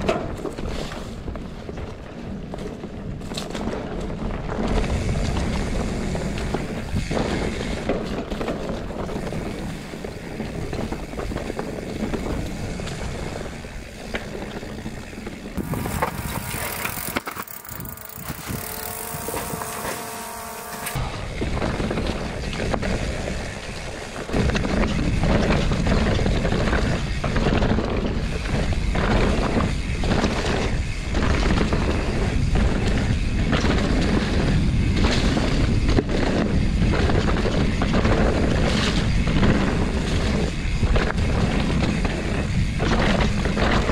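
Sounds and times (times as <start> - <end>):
bike rattling over dirt: 0.0 - 43.9
wind rumble on microphone: 0.0 - 43.9
drone propellers whining: 15.4 - 22.3.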